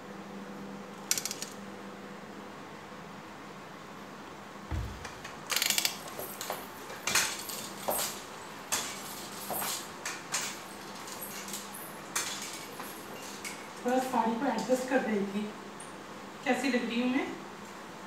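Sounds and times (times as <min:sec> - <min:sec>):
metal crutches tapping on floor: 0:04.7 - 0:07.3.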